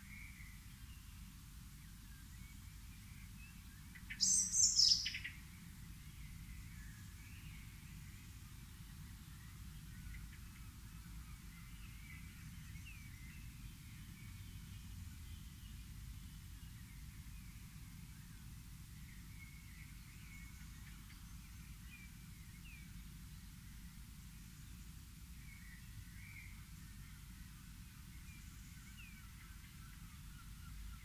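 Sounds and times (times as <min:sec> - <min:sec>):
small birds chirping: 0:01.9 - 0:23.5.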